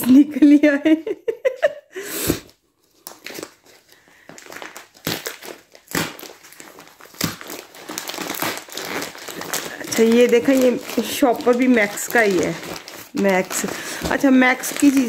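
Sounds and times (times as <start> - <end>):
plastic wrapping crinkling: 2.5 - 15.0
scissors cutting plastic: 4.5 - 15.0.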